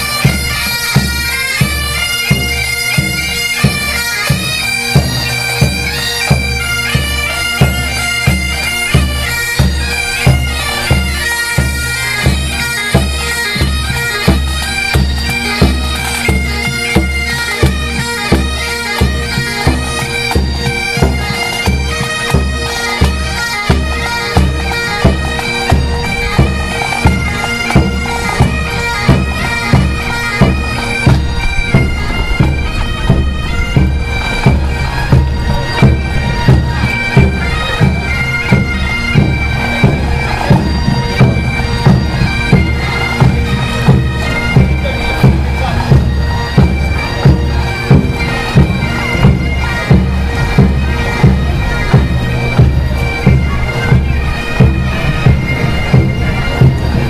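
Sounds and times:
bagpipes playing a melody: 0.0 - 57.0
bass drum march beat: 21.0 - 57.0.

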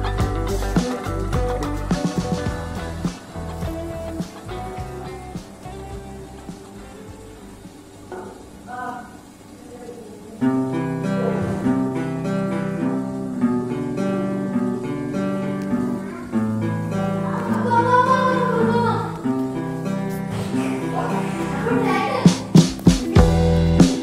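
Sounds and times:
person singing: 0.0 - 7.4, 20.4 - 24.0
plucked guitar: 0.0 - 8.6, 10.4 - 24.0.

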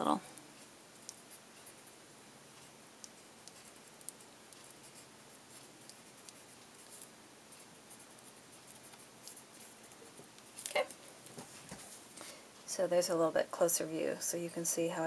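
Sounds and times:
scratchy rubbing on paper: 2.6 - 10.2.

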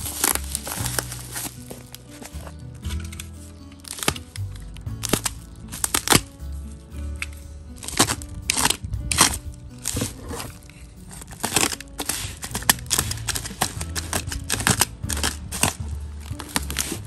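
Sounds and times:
bubble wrap crackling: 0.0 - 17.0
box cutter slicing: 7.8 - 15.8, 16.4 - 17.0.

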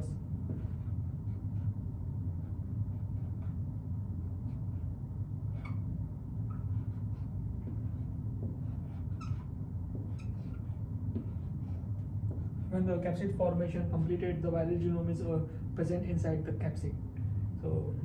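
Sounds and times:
marker squeaking on whiteboard: 0.0 - 1.7, 2.4 - 13.1
low room hum: 0.0 - 18.0.

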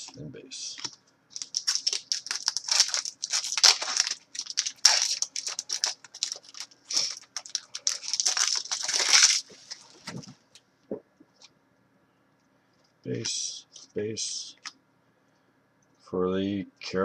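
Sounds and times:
foil wrapper tearing and crinkling: 1.4 - 9.9.

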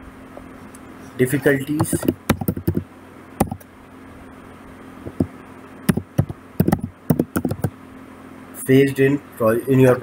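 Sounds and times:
faint steady hum: 0.0 - 10.0
keyboard keystroke clicks: 1.8 - 2.8, 5.9 - 7.7.

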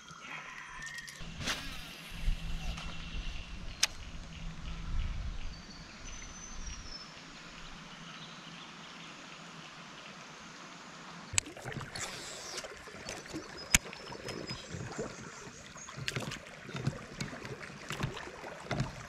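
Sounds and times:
water lapping against a boat: 11.3 - 19.0.

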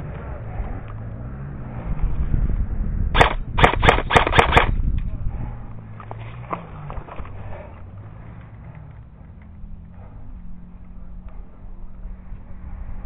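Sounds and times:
airsoft rifle shots: 3.1 - 4.8.

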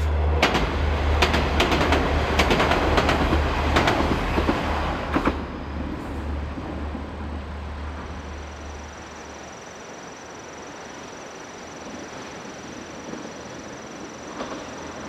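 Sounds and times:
diesel train rumble: 0.0 - 11.0
wind: 0.0 - 15.0.

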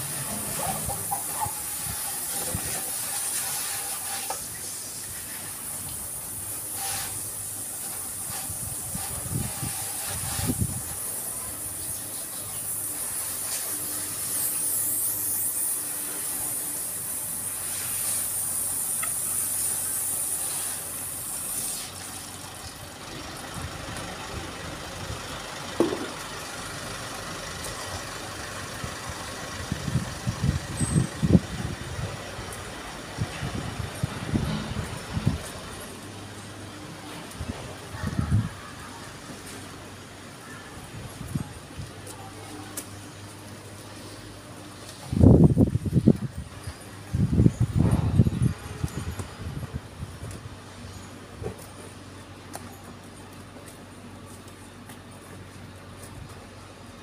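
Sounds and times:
hose spray hissing: 0.0 - 23.6.

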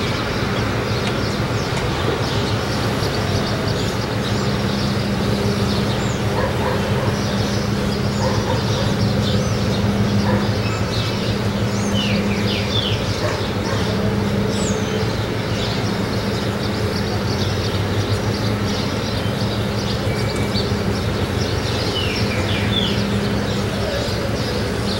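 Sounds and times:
ship engine drone: 0.0 - 24.9
small birds chirping: 0.0 - 24.9.

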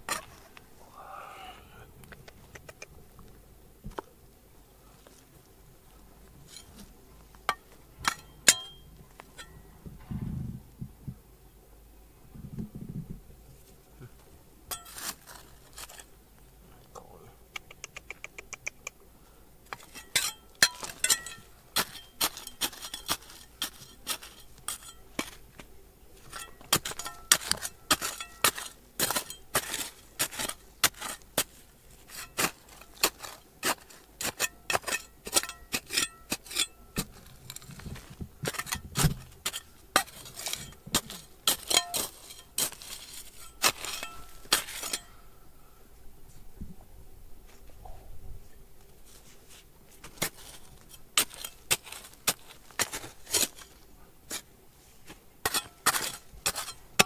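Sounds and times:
hard objects clinking: 19.7 - 25.4, 39.4 - 45.2.

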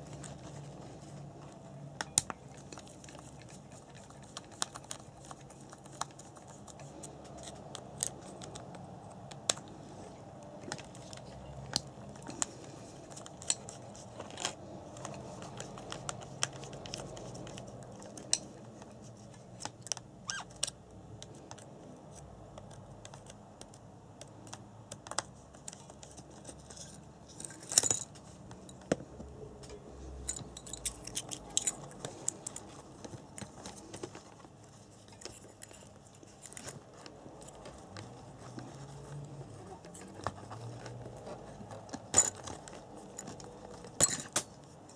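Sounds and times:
small parts clicking and rattling: 25.0 - 29.0, 30.2 - 38.8, 39.8 - 44.7
parts clattering: 26.6 - 37.8, 42.0 - 44.6.

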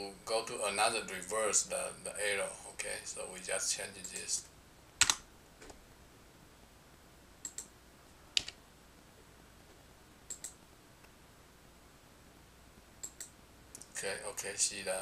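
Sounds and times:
computer mouse and keyboard clicks: 5.0 - 5.8, 7.4 - 7.7, 8.4 - 8.6, 10.3 - 10.6, 13.0 - 13.9.

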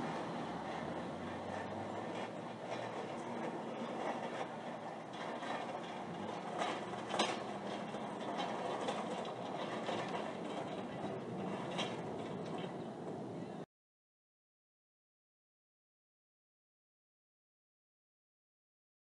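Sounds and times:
dense mechanical rushing hum: 0.0 - 13.6.

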